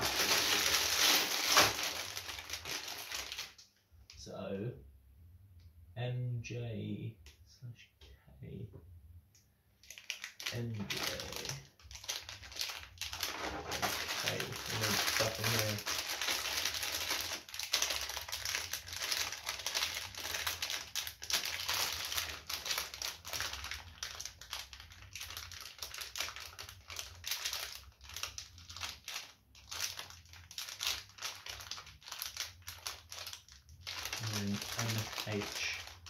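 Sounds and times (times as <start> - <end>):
plastic bags crinkling: 0.0 - 3.6, 9.8 - 36.0.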